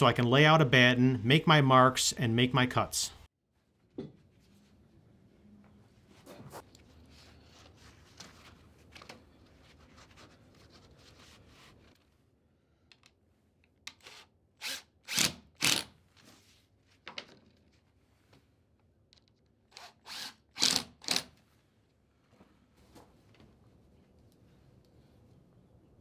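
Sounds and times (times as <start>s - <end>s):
cordless drill bursts: 19.7s - 21.2s.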